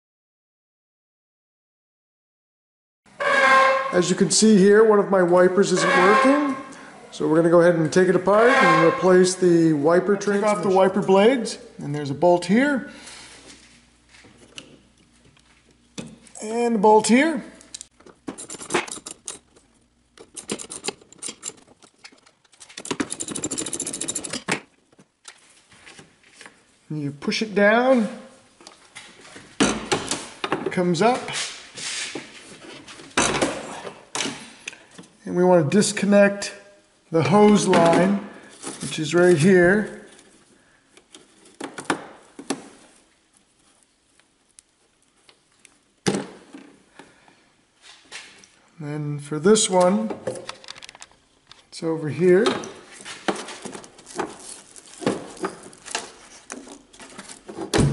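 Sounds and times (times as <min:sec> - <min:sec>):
hands clicking and rustling hose: 0:17.6 - 0:26.6, 0:40.1 - 0:47.1, 0:52.4 - 0:57.8.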